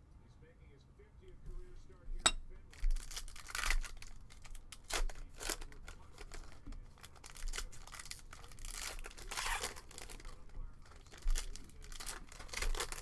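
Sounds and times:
foil wrapper crinkling: 0:02.8 - 0:13.0.

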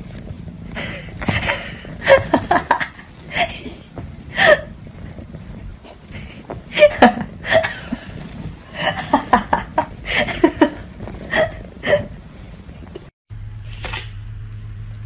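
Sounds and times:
person chuckling: 0:00.8 - 0:04.8, 0:06.1 - 0:12.2.

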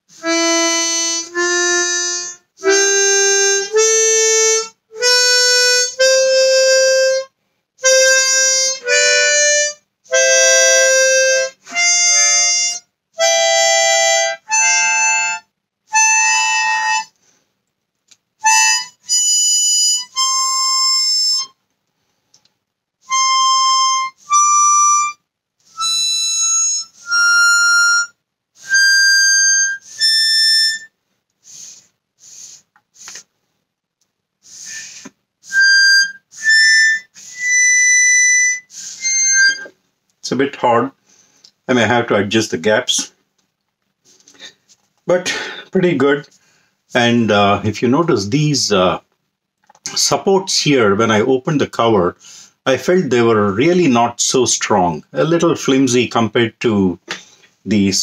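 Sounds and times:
harmonica notes: 0:00.1 - 0:17.2, 0:18.4 - 0:21.6, 0:23.0 - 0:33.2, 0:34.4 - 0:39.8
faint airy puffs: 0:31.4 - 0:33.4, 0:34.4 - 0:35.2.

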